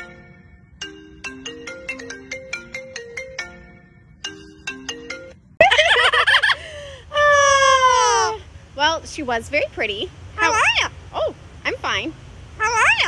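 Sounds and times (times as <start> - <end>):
phone ringtone marimba notes: 0.0 - 5.7
parrot calling: 10.3 - 11.0, 12.6 - 13.0.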